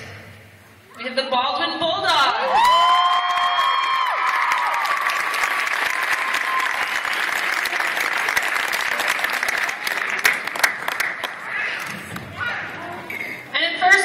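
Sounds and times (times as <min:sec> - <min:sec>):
high cheer: 0:02.3 - 0:12.7
crowd clapping: 0:02.5 - 0:12.3.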